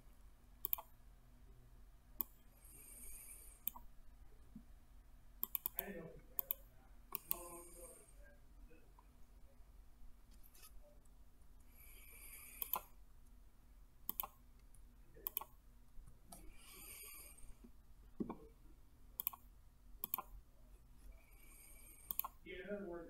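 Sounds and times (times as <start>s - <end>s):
computer mouse clicking: 0.6s - 0.9s, 2.2s - 2.4s, 3.6s - 3.9s, 5.4s - 7.6s, 12.5s - 12.9s, 14.1s - 15.6s, 19.2s - 20.3s, 22.0s - 22.4s.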